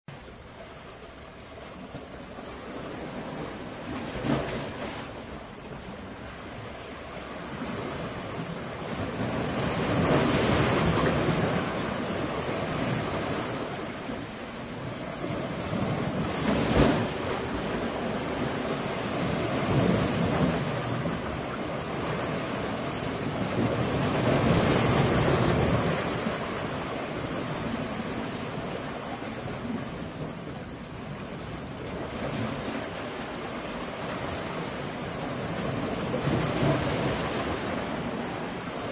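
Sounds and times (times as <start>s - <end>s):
ocean waves crashing: 0.1s - 38.9s.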